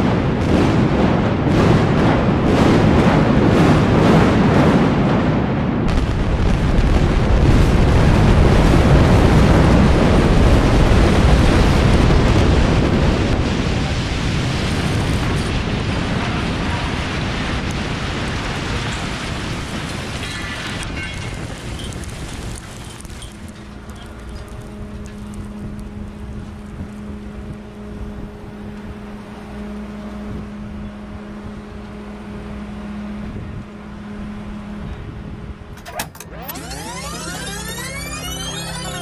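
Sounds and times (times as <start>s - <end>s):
sharp explosive cracks: 0.0s - 16.1s
deep rumble of building collapsing: 0.0s - 29.4s.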